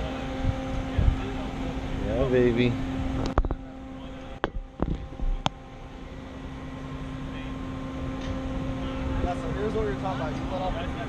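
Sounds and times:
engine and hydraulics humming: 0.0s - 11.0s.

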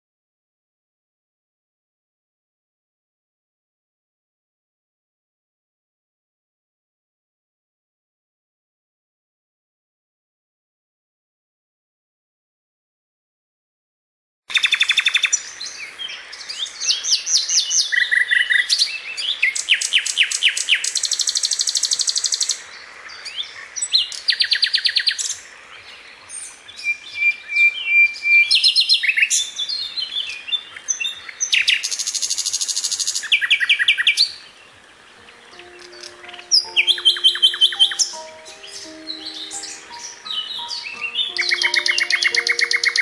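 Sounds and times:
nightingale singing trills: 14.5s - 43.0s
bird's pure whistle: 26.8s - 29.4s, 39.3s - 43.0s.

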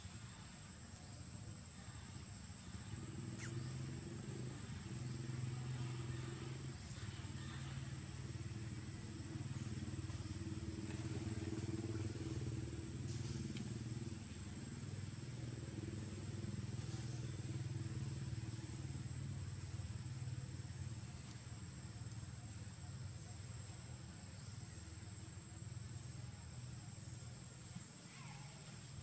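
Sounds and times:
small engine running: 3.0s - 20.3s.

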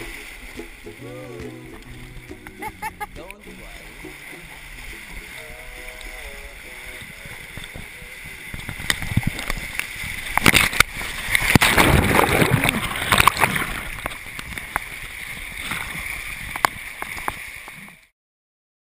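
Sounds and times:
river rapids rushing: 0.0s - 14.0s
water striking camera case: 8.5s - 14.9s.

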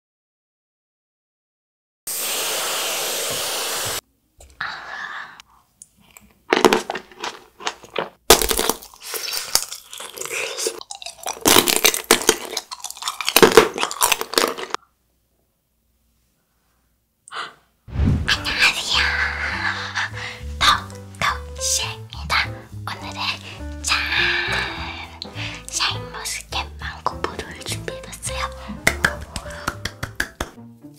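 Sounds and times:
aerosol can hissing: 2.1s - 4.0s
grapes crunching when chewed: 5.8s - 14.8s.

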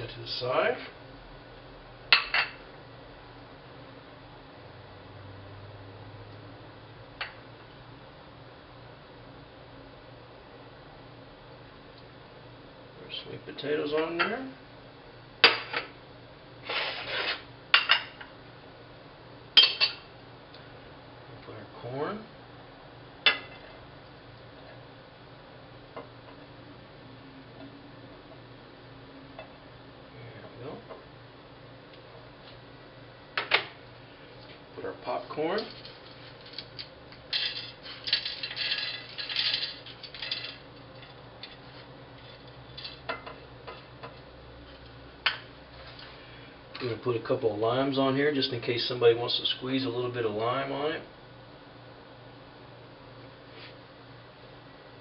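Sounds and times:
plate scraping on stone: 16.6s - 17.4s.

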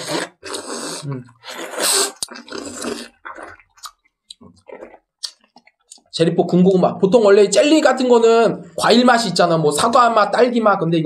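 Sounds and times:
lip smacking: 0.0s - 6.1s
people slurping jelly: 0.0s - 6.1s.

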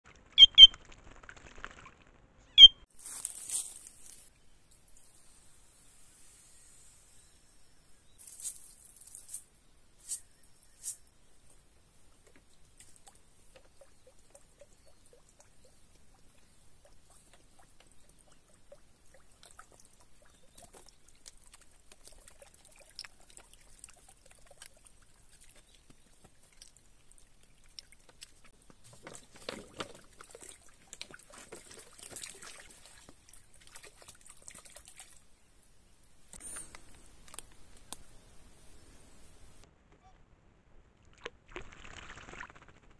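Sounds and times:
water trickling into pool: 12.1s - 35.5s.

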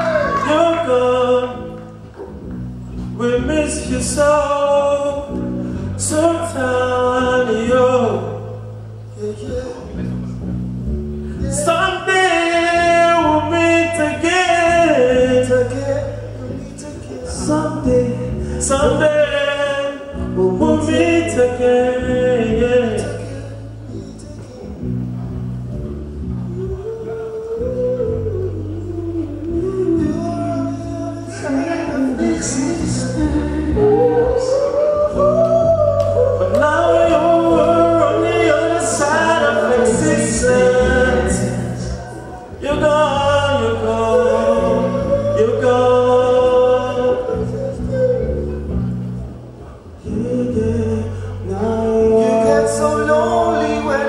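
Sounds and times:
men singing into microphones: 0.0s - 2.3s, 26.6s - 48.8s, 50.0s - 54.0s
band with bass and guitar: 0.0s - 54.0s.

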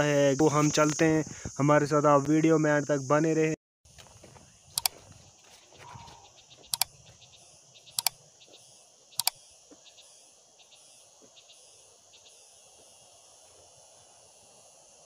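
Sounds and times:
insects chirring: 0.0s - 15.0s
double mouse clicks: 4.8s - 5.0s, 6.7s - 6.9s, 8.0s - 8.2s.

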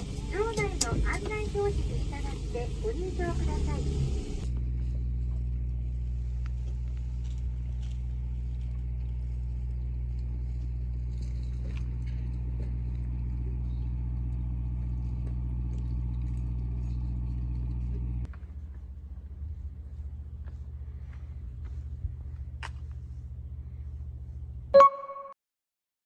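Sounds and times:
boat engine running: 0.0s - 18.3s.

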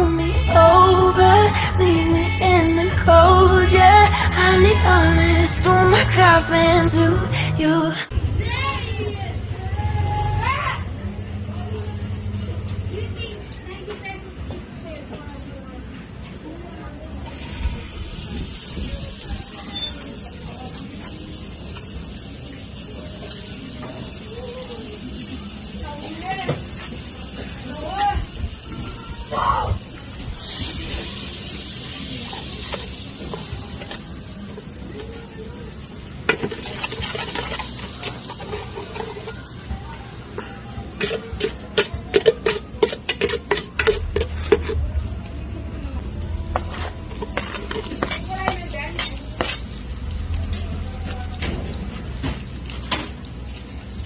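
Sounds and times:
fire hissing and rumbling: 17.4s - 40.4s.

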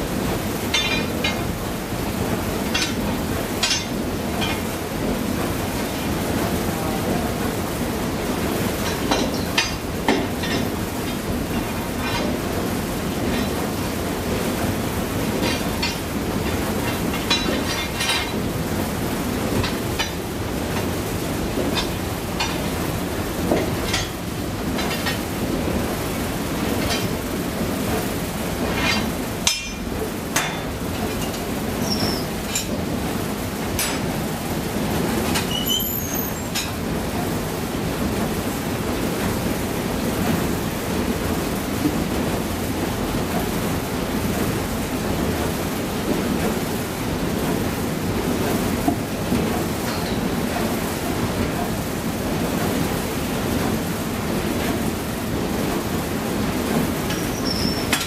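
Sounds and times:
metal rake clanking on furnace: 0.7s - 1.5s, 2.7s - 4.7s, 8.8s - 12.5s, 15.4s - 18.7s, 19.5s - 22.8s, 23.4s - 25.6s, 26.6s - 27.3s, 28.6s - 32.9s, 33.6s - 34.2s, 35.3s - 36.8s, 49.4s - 50.4s, 57.1s - 58.0s
metal door squealing: 35.5s - 36.5s.

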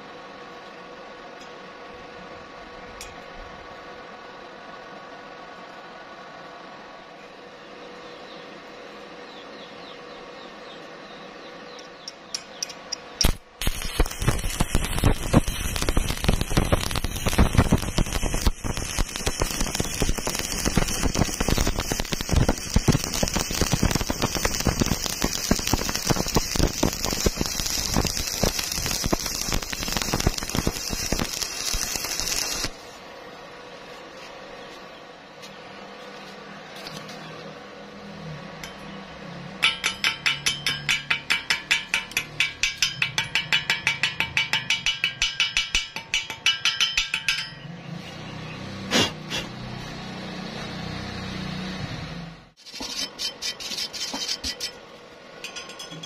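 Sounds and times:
steady hum: 0.0s - 47.5s
electrode striking clicks: 12.0s - 32.7s
welding arc crackling: 12.5s - 33.0s.

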